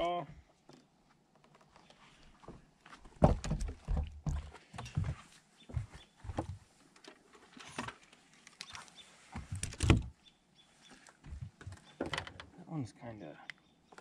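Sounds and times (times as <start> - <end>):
knocks and clunks on boat deck: 3.2 - 6.6.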